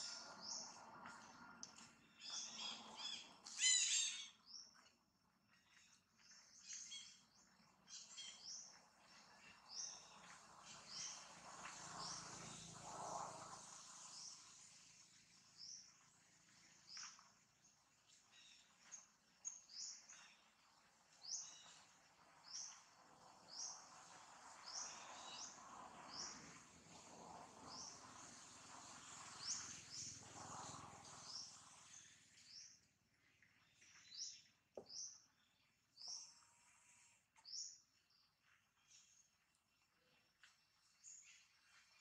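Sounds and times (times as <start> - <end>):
bird chirping: 1.7 - 4.9, 5.6 - 12.6.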